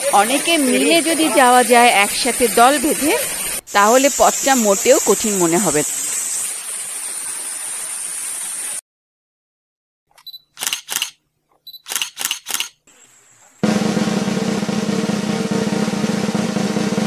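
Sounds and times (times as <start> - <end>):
steady hiss: 0.0 - 8.8
camera shutter clicks: 10.2 - 11.2, 11.8 - 12.8
drum-led background music: 13.6 - 17.0.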